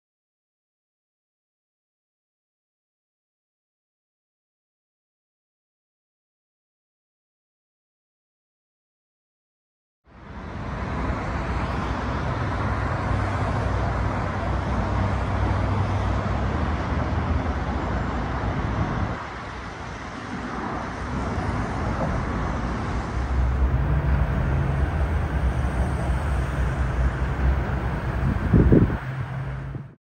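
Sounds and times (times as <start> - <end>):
heavy vehicle rumble: 10.1 - 30.0
road traffic passing: 10.1 - 30.0.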